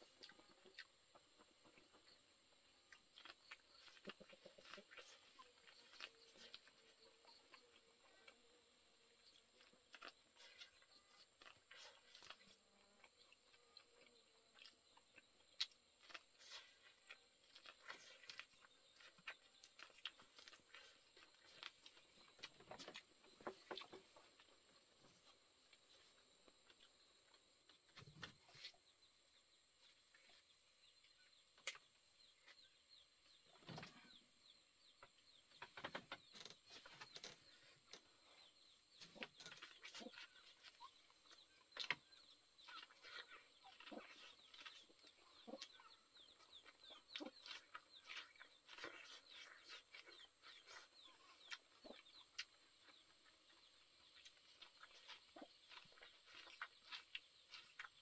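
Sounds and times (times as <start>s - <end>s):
chickens chirping: 0.0s - 8.6s, 29.8s - 58.0s
man chewing corn on the cob: 0.0s - 58.0s.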